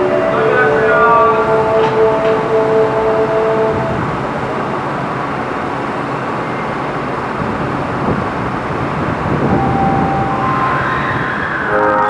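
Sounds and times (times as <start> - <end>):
train doors sliding shut: 0.0 - 4.2
train and station hum and hiss: 0.0 - 12.0
steady tone: 9.4 - 12.0.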